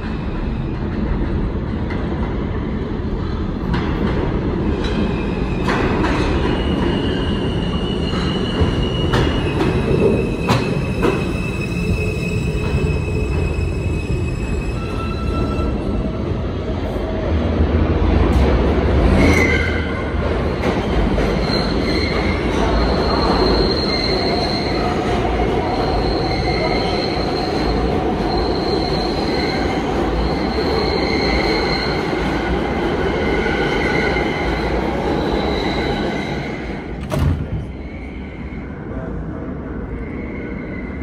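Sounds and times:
train wheels rumbling on rail: 0.0 - 41.0
high-pitched wheel squeal: 21.4 - 32.4.

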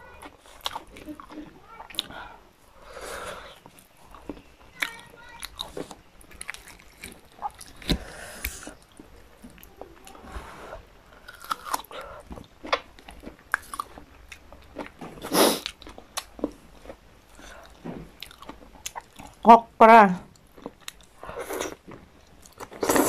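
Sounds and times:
chewing and lip smacks: 3.5 - 10.2, 11.2 - 19.4, 20.3 - 23.0.

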